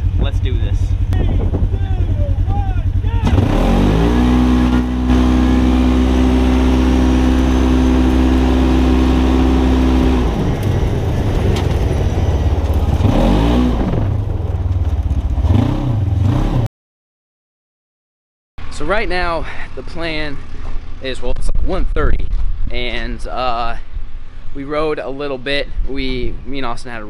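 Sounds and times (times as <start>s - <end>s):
utility vehicle engines racing: 0.0s - 16.7s.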